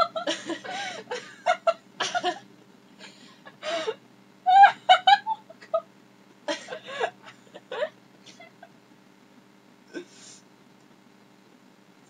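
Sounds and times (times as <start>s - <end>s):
women laughing: 0.0s - 2.4s, 3.1s - 5.8s, 6.5s - 8.7s.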